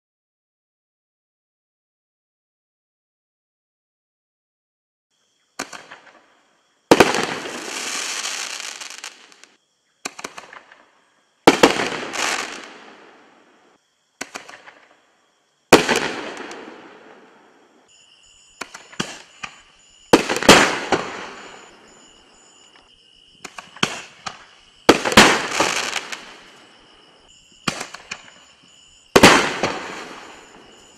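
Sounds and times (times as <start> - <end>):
firework mortar launch crack: 6.9 - 10.8, 11.5 - 13.4, 15.7 - 17.3, 18.6 - 21.7, 23.4 - 26.4, 27.6 - 28.4, 29.2 - 30.6.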